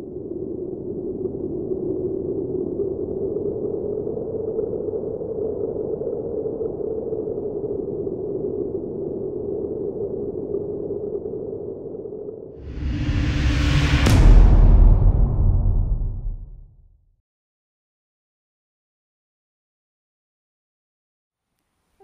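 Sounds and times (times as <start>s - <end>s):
low rushing drone: 12.6s - 16.8s.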